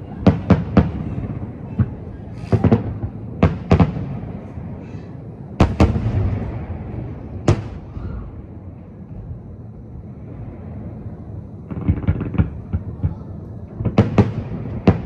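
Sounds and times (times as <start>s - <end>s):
firework shells bursting: 11.7s - 15.0s.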